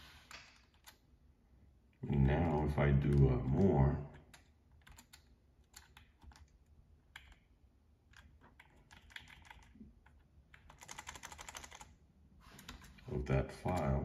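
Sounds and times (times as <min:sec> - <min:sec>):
computer keyboard typing: 0:03.0 - 0:14.0.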